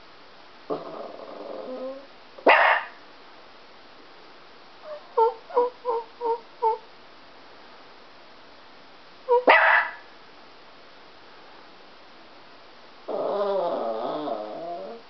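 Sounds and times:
dog whining: 0.7s - 2.1s, 4.9s - 6.8s, 13.1s - 15.0s
dogs barking: 2.4s - 3.0s, 9.4s - 10.1s.

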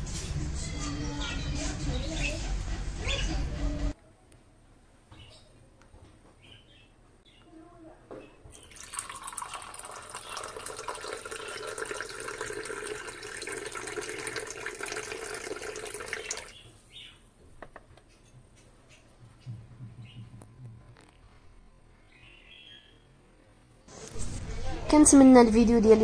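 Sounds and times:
coffee pouring into cup: 8.5s - 16.5s.

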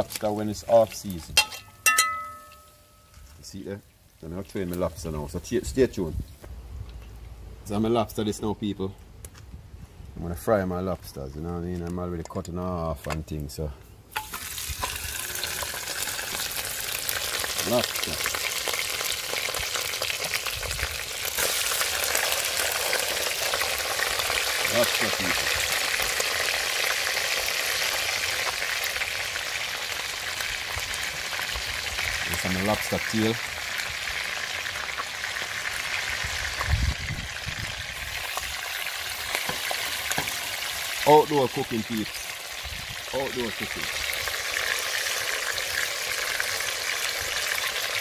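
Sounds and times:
food sizzling in hot oil: 14.1s - 48.0s.

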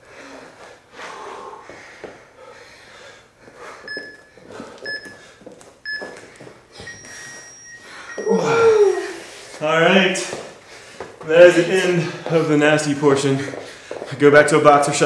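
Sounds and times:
people breathing hard: 0.0s - 14.3s
electronic countdown beeps: 3.8s - 5.2s, 5.8s - 8.9s.

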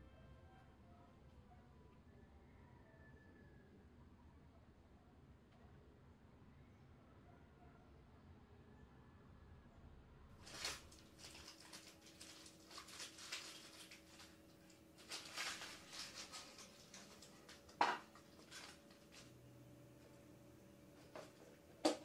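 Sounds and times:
paper and plastic rustling: 10.4s - 19.4s.

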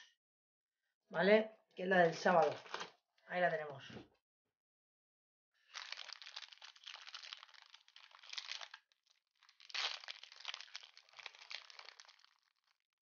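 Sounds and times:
plastic wrapper crinkling: 5.6s - 12.8s.

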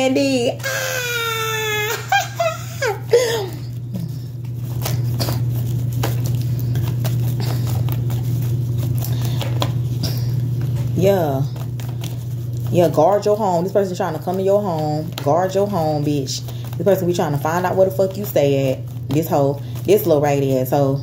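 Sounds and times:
steady low hum: 0.0s - 21.0s
cards being shuffled: 2.7s - 20.8s.

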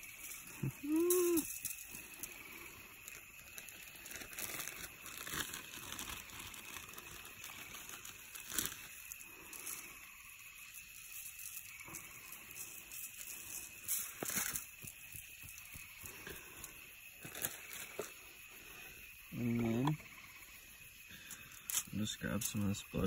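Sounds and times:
aluminium foil crinkling: 0.0s - 18.3s.

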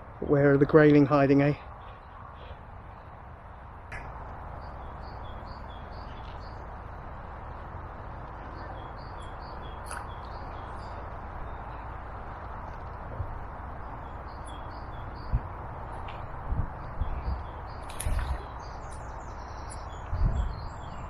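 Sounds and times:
bird chirping: 4.5s - 6.7s, 8.4s - 12.0s, 13.8s - 15.5s, 16.9s - 21.0s.

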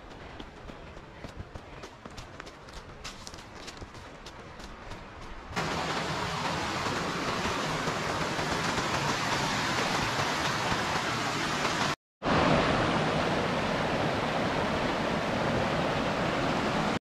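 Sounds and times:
water rushing over rocks: 5.6s - 17.0s.

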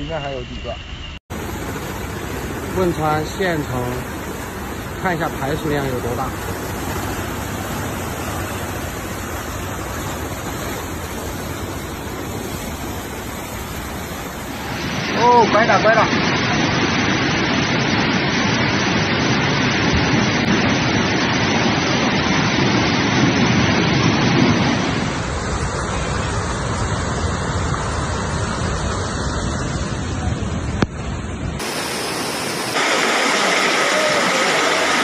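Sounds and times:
faint steady whine: 0.0s - 35.0s
river rushing: 1.3s - 35.0s.

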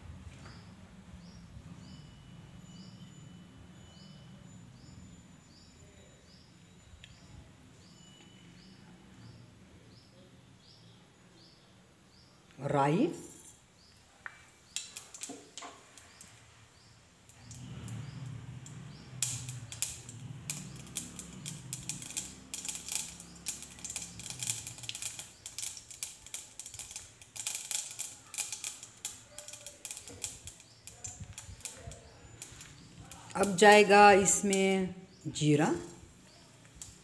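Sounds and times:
seeds spluttering in hot oil: 14.6s - 16.6s, 17.2s - 34.6s, 35.8s - 37.0s.

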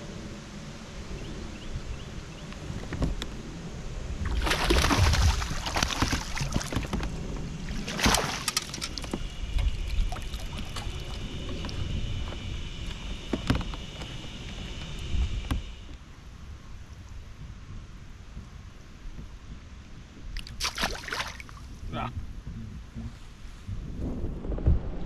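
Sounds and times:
water splashing around kayak: 4.1s - 16.0s, 19.2s - 21.9s
light knocks against hull: 5.0s - 12.5s.

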